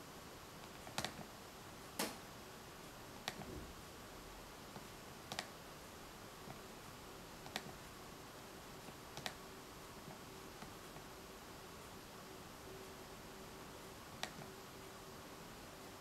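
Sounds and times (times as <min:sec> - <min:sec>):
laptop touchpad clicks: 0:09.2 - 0:09.4.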